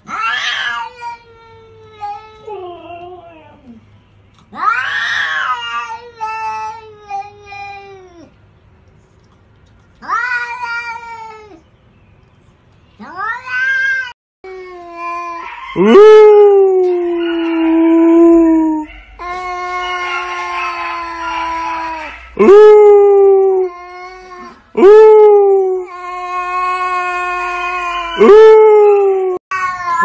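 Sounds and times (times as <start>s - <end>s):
cats yowling: 0.0s - 3.8s, 4.5s - 7.2s, 13.0s - 30.0s.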